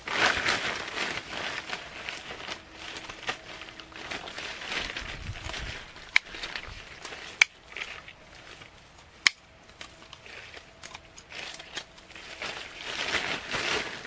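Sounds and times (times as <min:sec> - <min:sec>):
dry grass and tent fabric rustling: 0:00.0 - 0:14.0.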